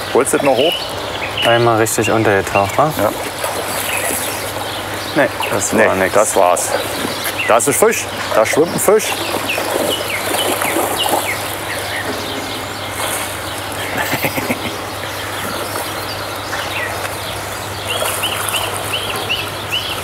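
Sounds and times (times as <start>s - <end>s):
small birds chirping: 0.0s - 20.0s
water splashing and churning: 0.0s - 20.0s.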